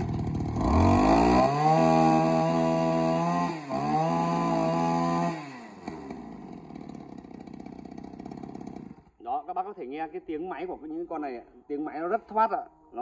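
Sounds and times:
brush cutter engine revving: 0.0 - 9.2.

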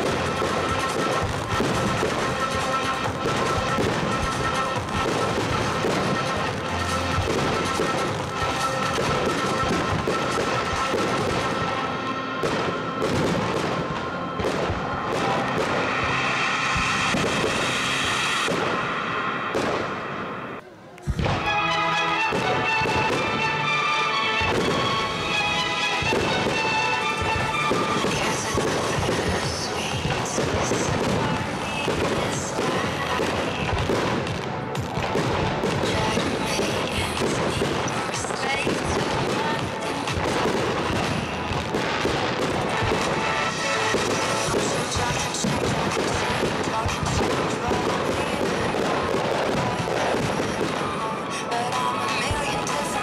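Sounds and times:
fireworks bangs: 0.0 - 53.0
music: 0.0 - 53.0.

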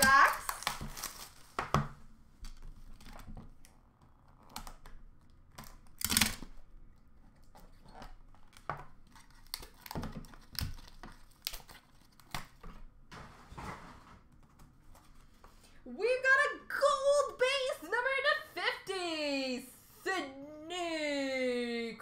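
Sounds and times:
foil wrapper crinkling and tearing: 0.0 - 1.6, 8.5 - 12.6.

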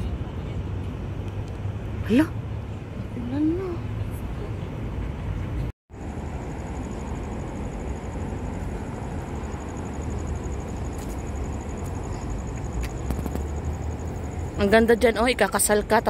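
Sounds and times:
outdoor rumble and hiss: 0.0 - 16.0
faint high whine: 5.9 - 16.0.

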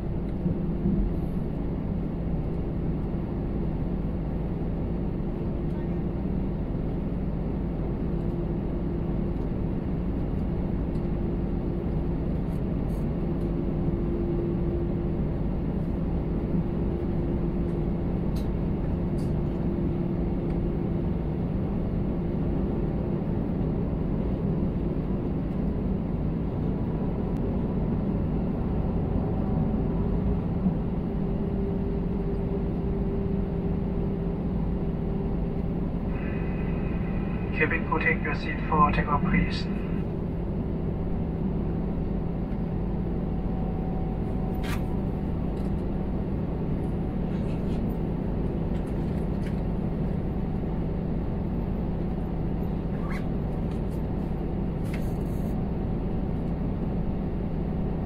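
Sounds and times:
jet engines running at low power: 0.0 - 58.0
low hum: 0.0 - 58.0
cabin air rushing: 35.8 - 40.1.

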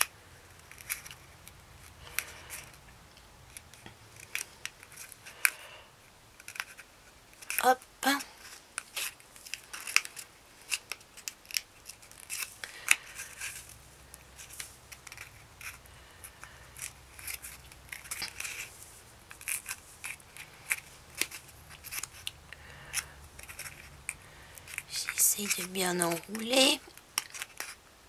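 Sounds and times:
paper crinkling and rustling: 6.3 - 27.8.

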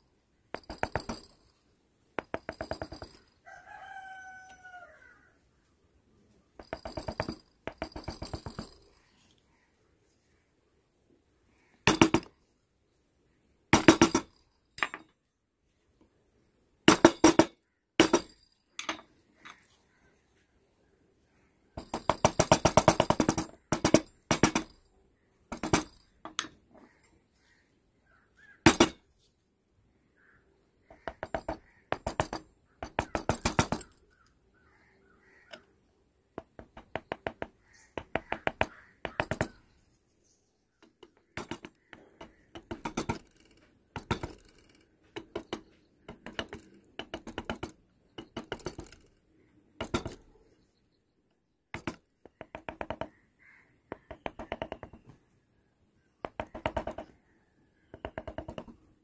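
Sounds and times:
rooster crowing: 3.4 - 5.4.

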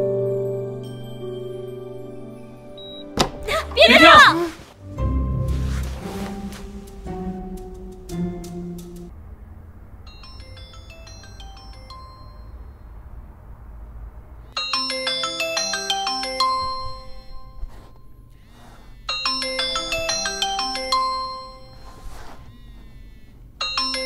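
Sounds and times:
marimba ringtone: 10.2 - 12.6, 14.6 - 17.6, 19.1 - 22.6, 23.6 - 24.0.

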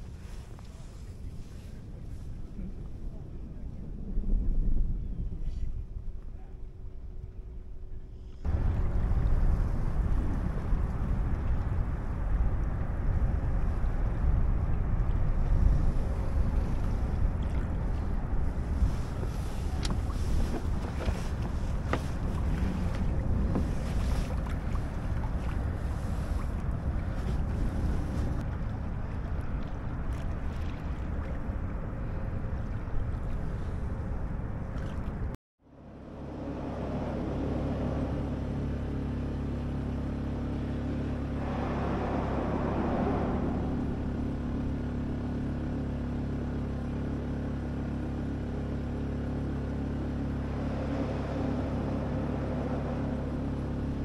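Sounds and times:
wind buffeting microphone: 0.0 - 35.4, 36.8 - 46.6
boat motor humming: 6.2 - 54.0
rushing noise: 41.2 - 45.8.

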